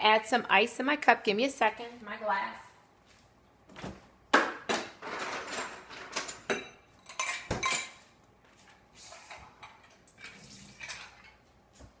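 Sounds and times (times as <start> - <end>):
glassware clinking and rattling: 5.0 - 8.0.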